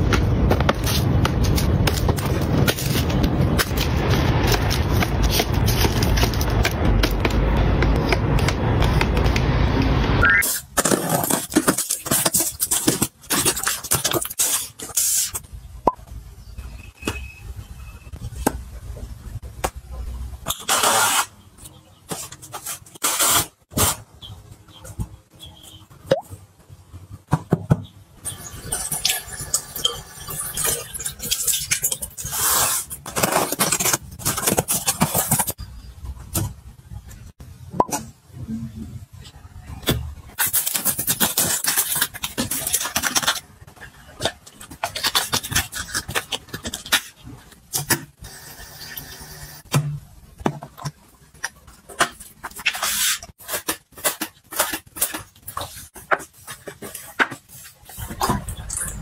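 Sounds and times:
cardboard and bubble wrap rustling: 0.0s - 9.6s, 10.4s - 15.4s, 20.5s - 24.0s, 32.2s - 35.6s, 40.3s - 48.0s, 50.4s - 59.0s.

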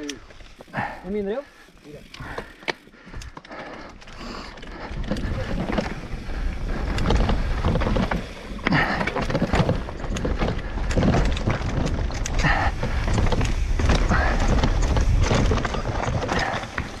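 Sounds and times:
bike knocking and rattling: 0.0s - 17.0s.

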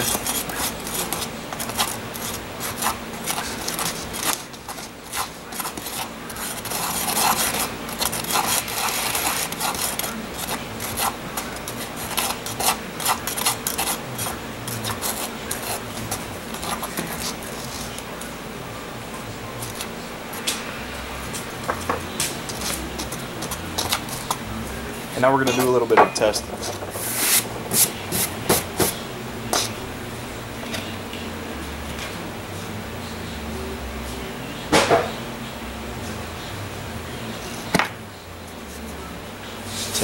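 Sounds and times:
spatula scraping concrete in cup: 0.0s - 18.0s.

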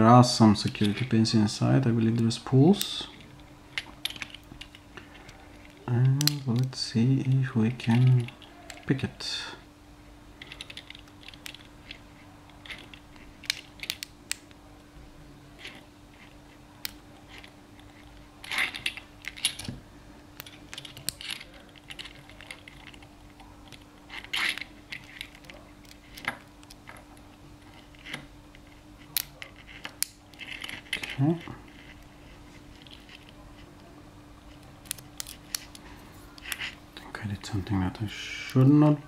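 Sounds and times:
lock pick clicking and scraping: 10.4s - 14.5s, 15.6s - 19.7s, 20.4s - 33.3s, 34.5s - 35.8s, 36.4s - 36.8s.

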